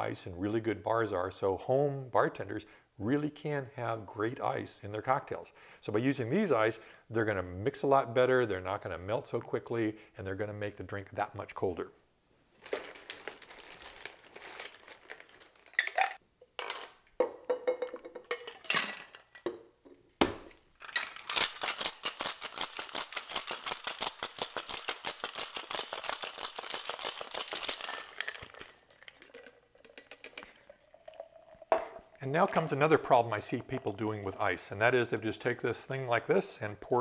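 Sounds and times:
ice cubes clinking into shaker: 15.5 - 16.2, 20.8 - 31.3
ice rattling in metal shaker: 21.1 - 31.6.

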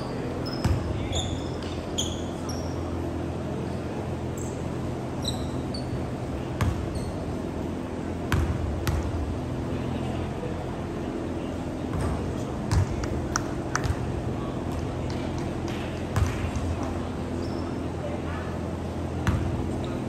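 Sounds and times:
sneaker squeaks: 0.0 - 3.0, 3.6 - 7.4, 17.3 - 18.0.

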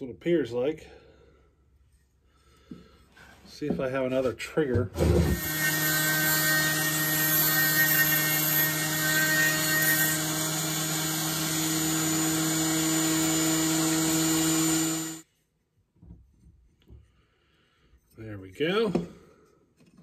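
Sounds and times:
rotary tool whining: 5.2 - 15.3.

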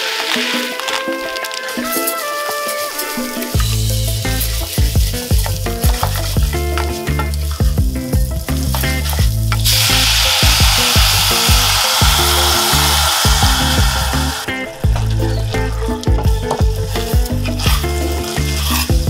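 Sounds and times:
background music: 0.0 - 19.0
loud sizzling in a saucepan: 0.0 - 19.0
wooden spatula stirring: 14.9 - 19.0.

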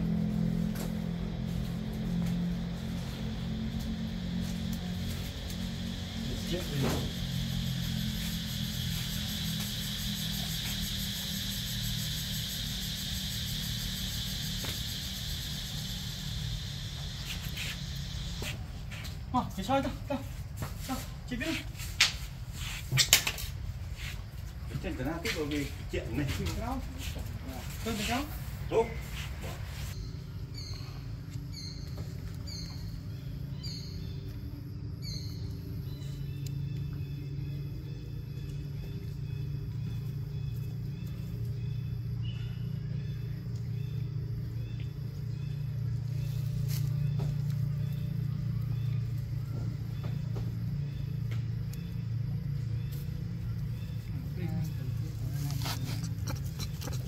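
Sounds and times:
steady low rumble: 0.0 - 22.9
high-pitched hiss: 4.3 - 24.2.

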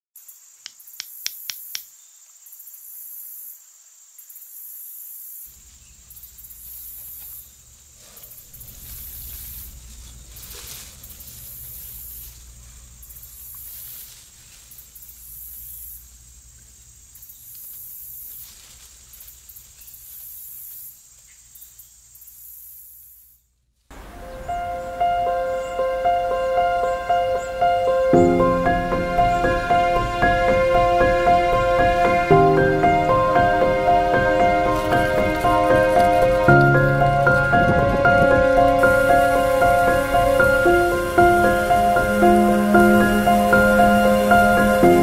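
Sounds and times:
insects chirring: 0.2 - 45.0
low rumble: 7.7 - 13.0.

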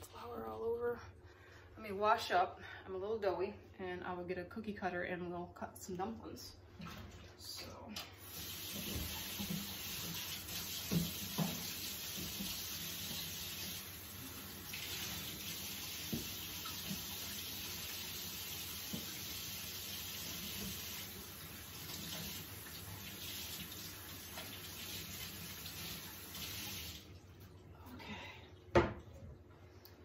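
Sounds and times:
tap water running: 6.8 - 27.8.

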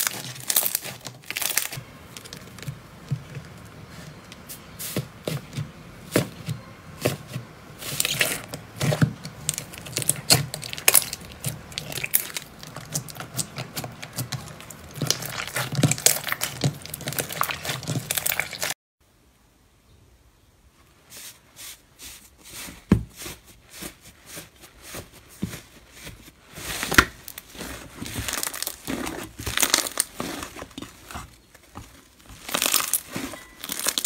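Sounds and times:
slime crackling and popping: 0.0 - 2.7, 7.8 - 18.7, 26.8 - 34.0.

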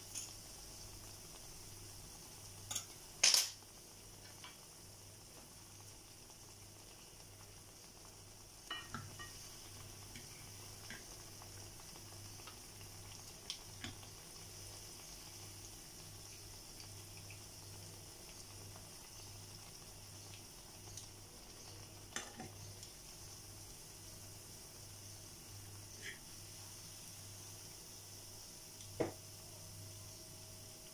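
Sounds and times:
batter frying in oil: 0.0 - 30.9
tongs clicking against pan: 0.1 - 0.4, 2.7 - 3.5.

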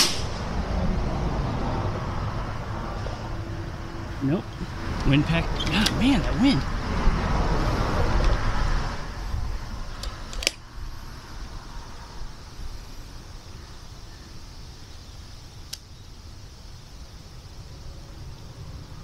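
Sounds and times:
sharp click: 0.0 - 0.4
wind buffeting microphone: 0.0 - 12.8.

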